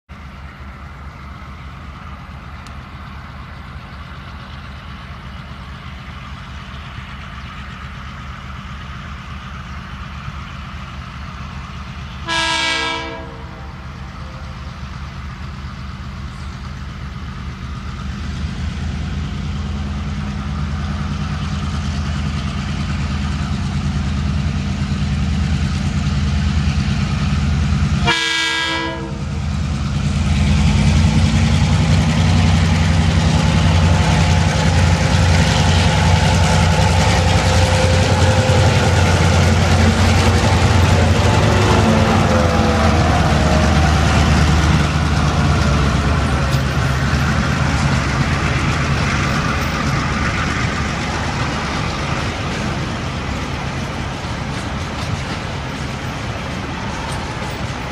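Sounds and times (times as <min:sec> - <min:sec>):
diesel locomotive engines droning: 0:00.1 - 0:57.9
locomotive horn blasts: 0:12.2 - 0:14.6, 0:28.0 - 0:29.3, 0:36.9 - 0:44.0.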